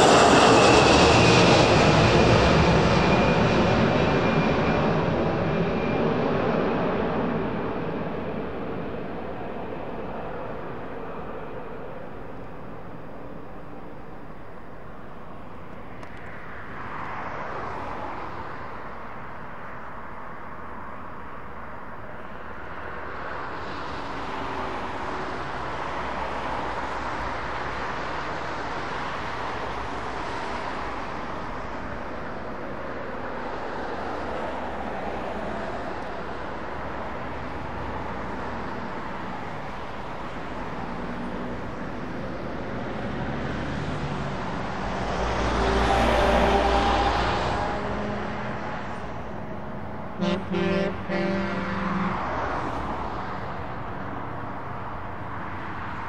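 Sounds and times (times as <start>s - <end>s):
jet engines running: 0.0s - 14.3s.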